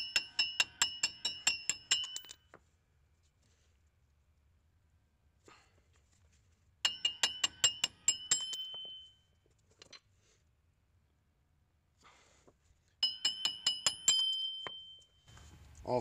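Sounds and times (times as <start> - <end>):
hammer striking metal: 0.0 - 2.4, 6.9 - 9.2, 13.0 - 15.0.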